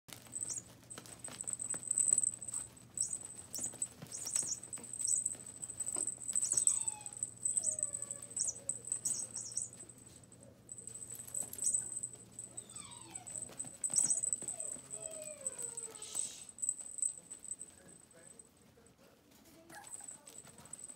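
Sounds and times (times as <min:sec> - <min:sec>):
puppy paws pattering: 0:00.1 - 0:20.9
puppy whimpers: 0:06.0 - 0:09.8, 0:11.4 - 0:16.5.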